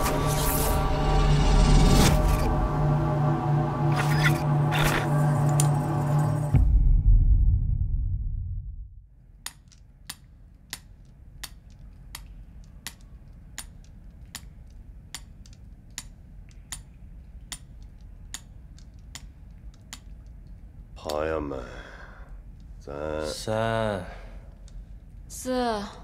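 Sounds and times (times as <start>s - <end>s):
low rumble: 0.0s - 9.1s
sharp regular ticks: 9.4s - 21.2s.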